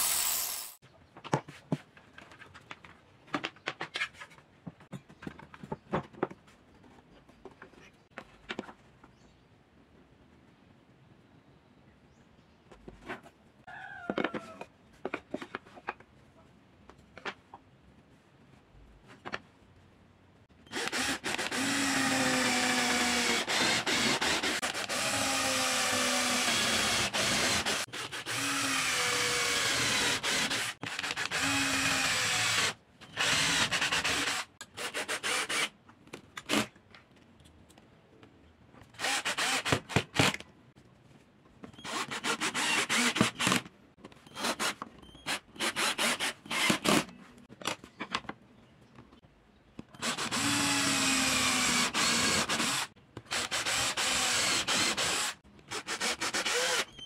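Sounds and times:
drill boring into wood: 0:00.0 - 0:00.8, 0:20.7 - 0:35.7, 0:39.0 - 0:39.8, 0:41.8 - 0:43.6, 0:44.3 - 0:47.0, 0:50.0 - 0:57.0
drill driving screws: 0:00.0 - 0:00.8, 0:20.7 - 0:35.7, 0:39.0 - 0:40.4, 0:41.8 - 0:43.7, 0:44.3 - 0:47.1, 0:50.0 - 0:57.0.

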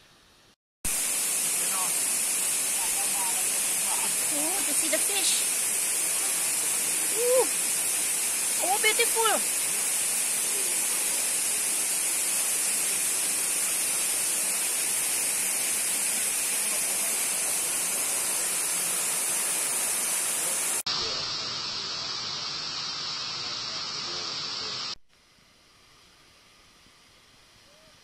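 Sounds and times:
waterfall rushing: 0:00.9 - 0:25.0.

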